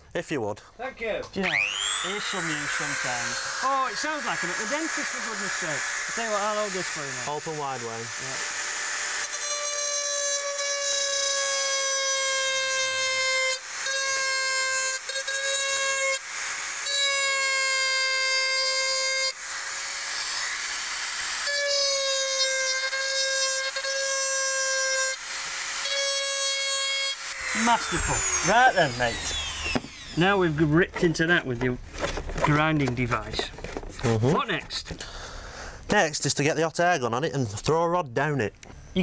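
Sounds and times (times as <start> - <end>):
rotary tool grinding plastic: 1.5 - 12.8.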